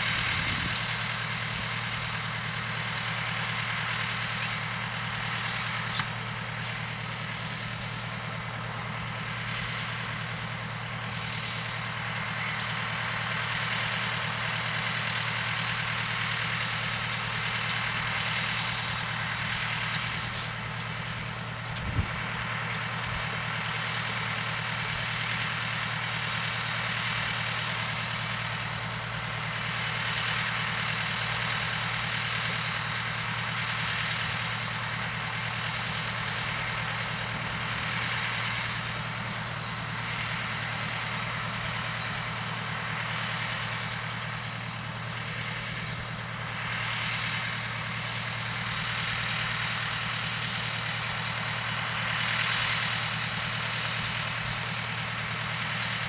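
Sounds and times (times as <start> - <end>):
tractor diesel engine idling: 0.0 - 56.0.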